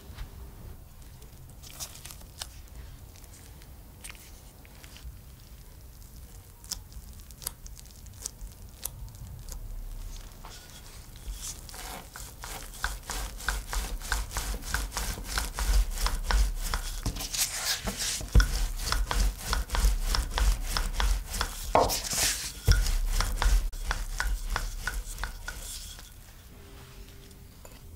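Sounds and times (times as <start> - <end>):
rolling pin rolling dough: 10.1 - 26.4.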